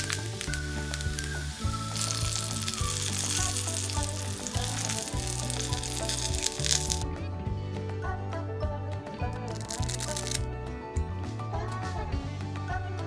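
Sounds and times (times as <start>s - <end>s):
eggplant sizzling in oil: 0.0s - 7.0s, 9.6s - 10.4s
background music: 0.0s - 13.0s.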